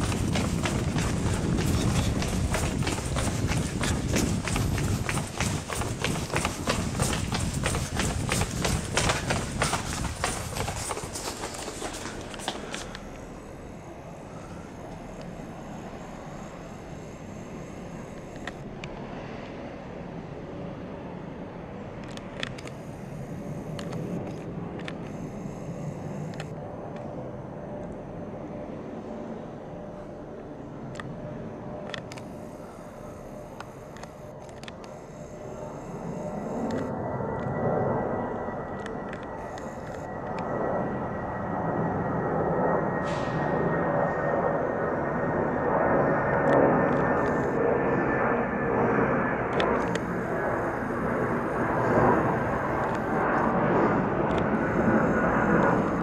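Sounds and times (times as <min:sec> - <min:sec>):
train rumble and hum: 0:00.0 - 0:13.4.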